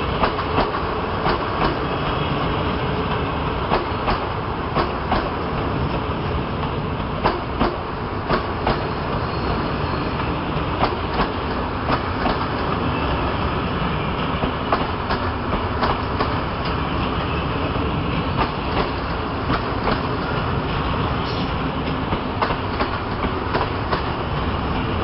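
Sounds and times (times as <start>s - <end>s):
rumble of wheels on rails: 0.0s - 25.0s
clacks over rail joints: 0.2s - 1.9s, 3.7s - 5.7s, 6.6s - 8.9s, 10.7s - 12.8s, 14.4s - 17.3s, 18.2s - 20.4s, 21.8s - 24.9s.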